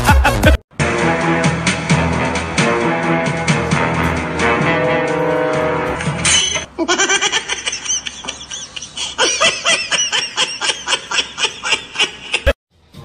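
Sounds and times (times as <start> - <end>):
music: 0.0 - 6.6
high-pitched giggling laughter: 6.7 - 12.6.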